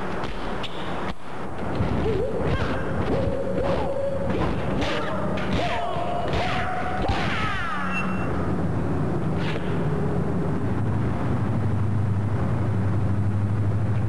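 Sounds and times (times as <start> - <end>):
punch and kick impacts: 1.8 - 7.7.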